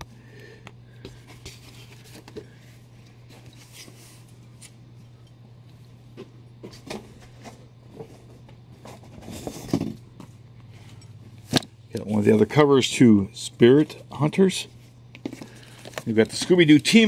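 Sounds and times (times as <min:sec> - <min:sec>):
steady low hum: 0:00.0 - 0:17.0
comic books rustling: 0:01.0 - 0:04.8, 0:06.1 - 0:10.4, 0:14.8 - 0:17.0.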